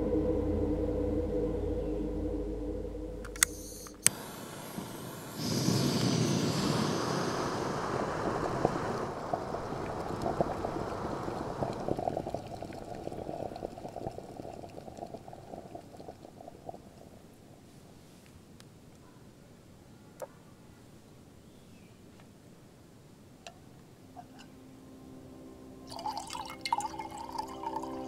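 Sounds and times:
sharp clicks: 0:03.2 - 0:04.2
gas stove burner hissing: 0:03.3 - 0:16.0.

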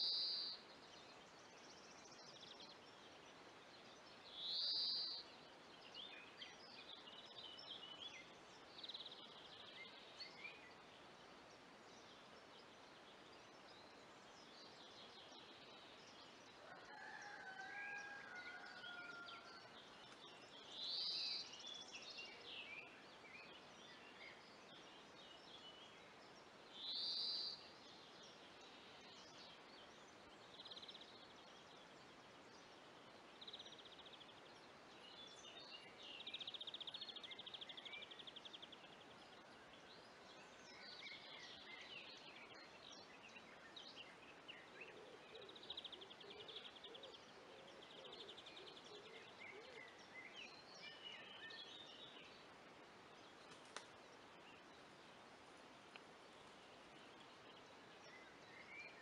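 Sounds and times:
songbirds calling: 0:00.0 - 0:59.0
rooster crowing: 0:16.7 - 0:19.6.

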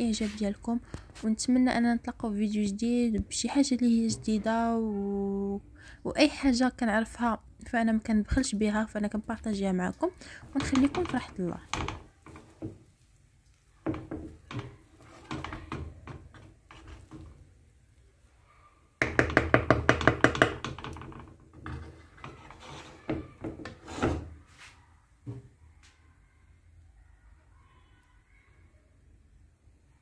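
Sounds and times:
wooden spatula scraping rice in pan: 0:10.4 - 0:13.0, 0:13.8 - 0:17.5, 0:20.5 - 0:24.8
spatula knocking against pan: 0:10.5 - 0:12.8, 0:13.8 - 0:17.4, 0:19.0 - 0:24.3.

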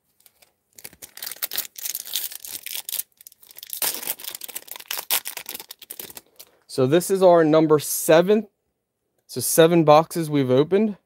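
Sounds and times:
foil pack crinkling: 0:00.2 - 0:06.5.

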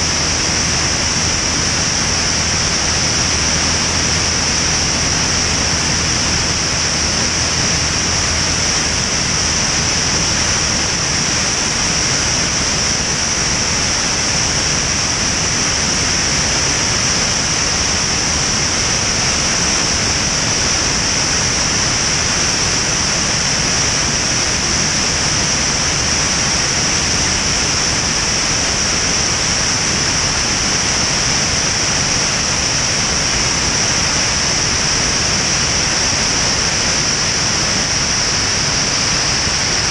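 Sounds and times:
aircraft engine and propeller drone: 0:00.0 - 0:39.9
rush of wind: 0:00.0 - 0:39.9.

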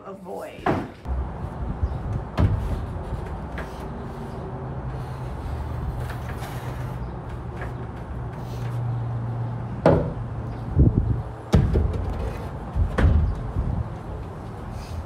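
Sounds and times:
lumber knocks: 0:09.8 - 0:10.2.

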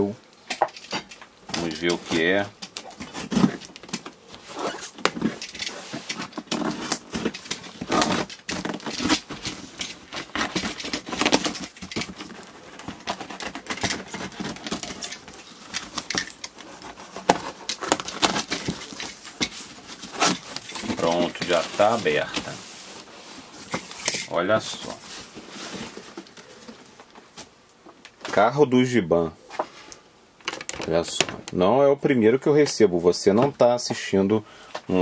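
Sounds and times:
packing tape peeling and tearing: 0:00.8 - 0:22.6
cardboard flaps scraping: 0:01.5 - 0:27.5.

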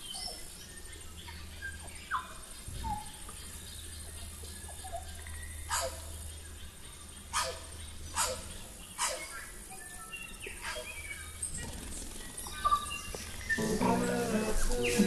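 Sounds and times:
dog barking: 0:05.7 - 0:06.0, 0:07.3 - 0:07.6, 0:08.2 - 0:09.3.

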